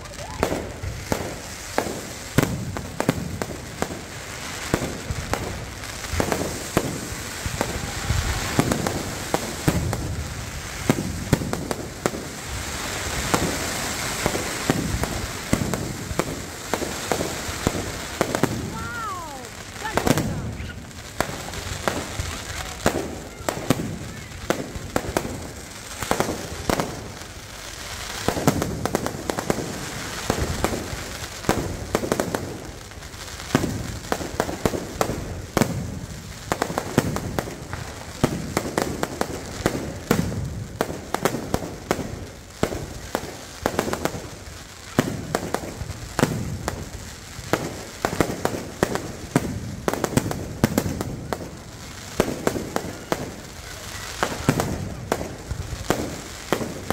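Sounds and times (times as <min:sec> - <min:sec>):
fireworks bangs and crackles: 0:00.0 - 0:56.9.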